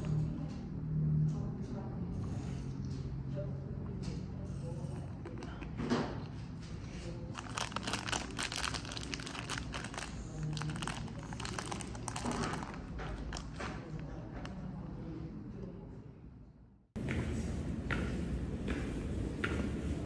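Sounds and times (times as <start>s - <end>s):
plastic wrapper crinkling: 7.3s - 14.0s.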